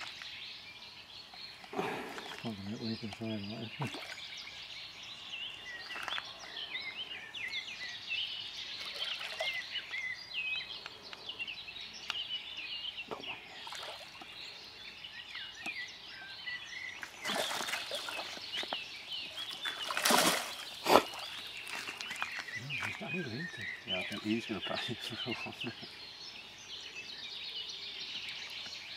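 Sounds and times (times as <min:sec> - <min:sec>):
birds chirping and singing: 0:00.0 - 0:28.9
fish splashing at surface: 0:17.2 - 0:18.4, 0:19.6 - 0:22.0.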